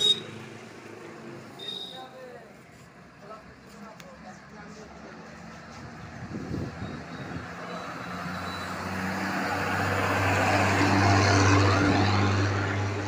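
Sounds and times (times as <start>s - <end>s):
bus driving past: 4.2s - 13.0s.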